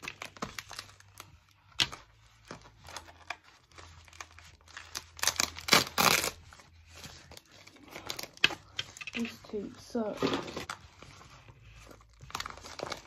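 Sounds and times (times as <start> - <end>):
packing tape ripping off roll: 4.0 - 6.4.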